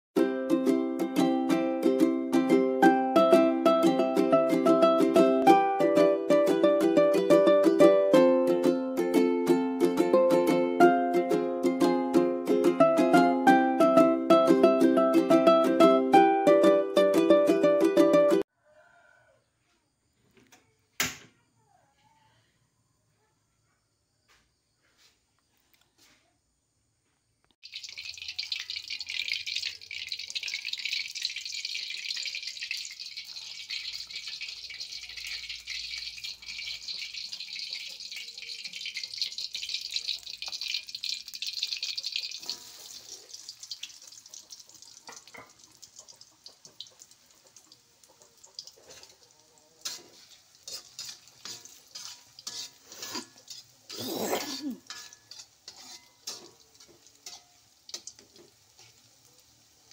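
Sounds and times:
food sizzling in hot oil: 27.6s - 59.9s
metal spatula scraping wok: 32.7s - 40.0s, 41.0s - 44.4s, 48.6s - 59.2s.

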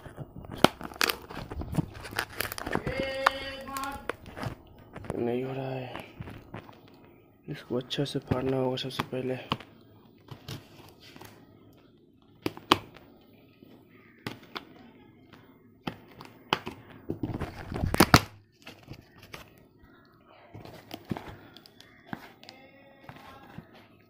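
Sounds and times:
plastic packaging crinkling and tearing: 0.0s - 7.1s, 16.2s - 20.0s.

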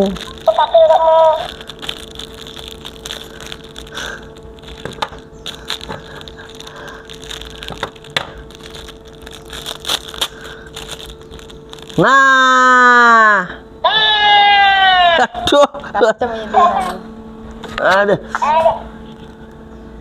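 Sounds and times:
plastic wrapping crinkling: 0.0s - 12.2s, 19.0s - 19.6s
faint steady hum: 0.0s - 20.0s.

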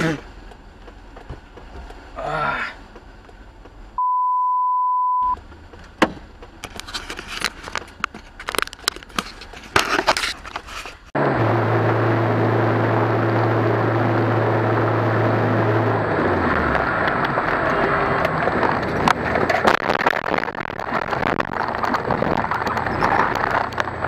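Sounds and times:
vehicle engine hum: 0.0s - 4.1s, 5.2s - 24.0s
sharp clicks and knocks: 5.4s - 10.7s, 17.0s - 24.0s.

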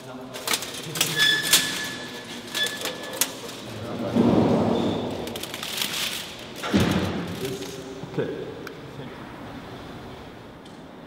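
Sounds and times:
thin metal sheets clinking: 0.3s - 3.8s.

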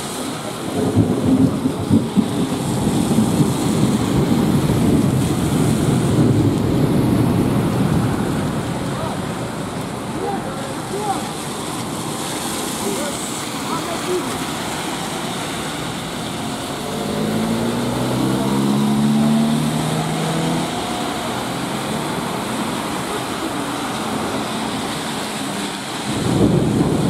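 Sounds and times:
tyres hissing on wet road: 0.0s - 27.0s
minibus driving past: 14.6s - 23.5s.

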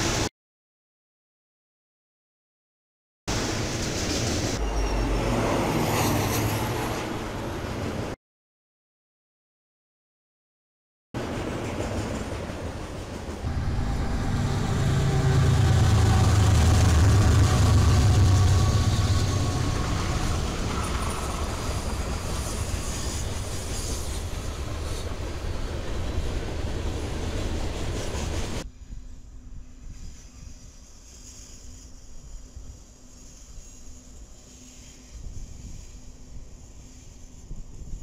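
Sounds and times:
diesel locomotive engine rumble: 3.3s - 8.2s, 11.2s - 38.0s
freight cars rolling on rails: 11.2s - 28.6s.

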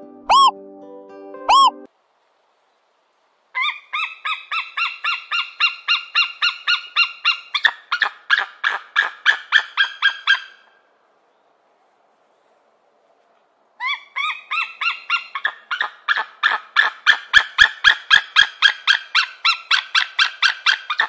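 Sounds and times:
eagle yelping call: 0.3s - 0.5s, 1.5s - 1.9s, 3.6s - 10.8s, 13.8s - 21.0s.

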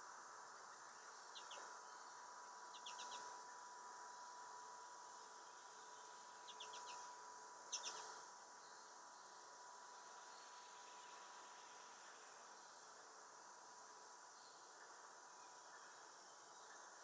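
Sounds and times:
faint steady hum: 0.0s - 17.0s
finches chirping: 1.3s - 1.7s, 2.7s - 3.3s, 6.4s - 7.1s, 7.7s - 8.2s.

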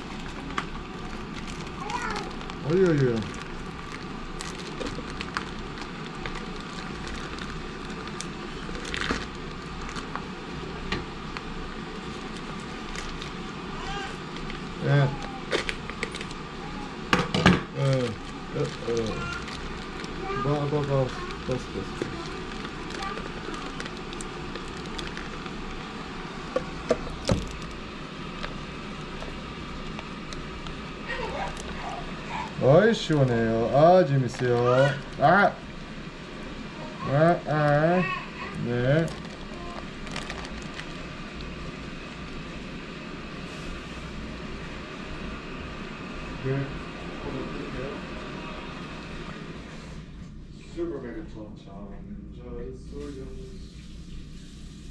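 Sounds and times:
plastic bag and paper crinkling: 0.0s - 10.3s, 11.3s - 16.9s, 17.7s - 35.8s, 37.1s - 42.4s
room noise: 0.0s - 54.9s
steady background hum: 0.0s - 54.9s.

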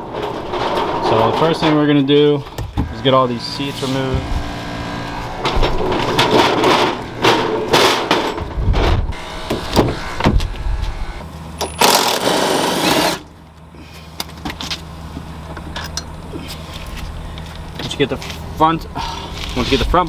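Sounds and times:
metal tools clattering in drawer: 5.6s - 8.5s.

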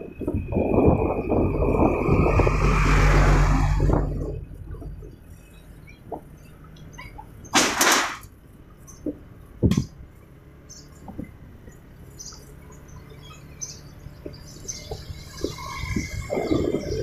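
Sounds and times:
motorbike engine low hum: 0.0s - 17.0s
loud rush of noise: 0.4s - 5.0s.

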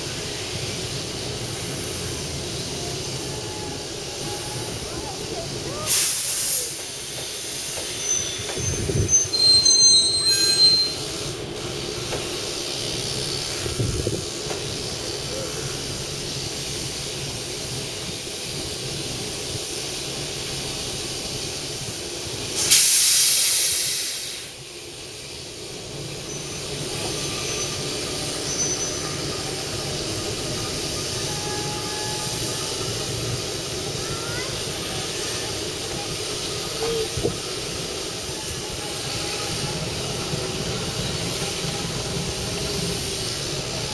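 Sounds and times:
diesel locomotive running slowly: 0.0s - 43.9s
loud steam hiss: 0.0s - 43.9s
wheel squeals on track: 7.8s - 11.2s, 26.2s - 29.6s, 30.8s - 32.8s.

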